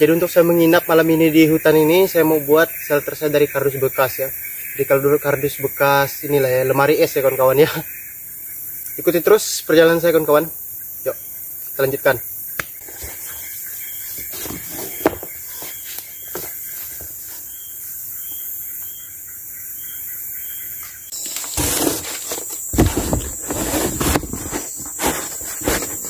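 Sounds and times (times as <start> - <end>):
forest insects droning: 0.0 - 26.0
cardboard rustling: 14.0 - 17.1, 21.1 - 26.0.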